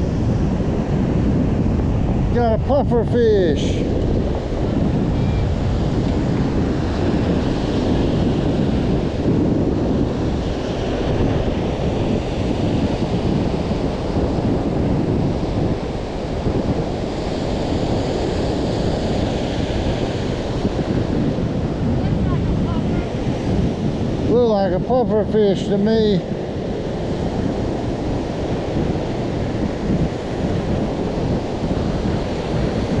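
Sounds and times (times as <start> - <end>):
ocean surf breaking on beach: 0.0 - 33.0
wind buffeting microphone: 0.0 - 33.0.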